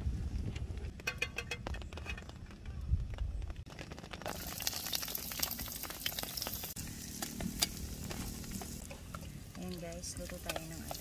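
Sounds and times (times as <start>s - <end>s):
onions sizzling in a frying pan: 4.2s - 11.0s.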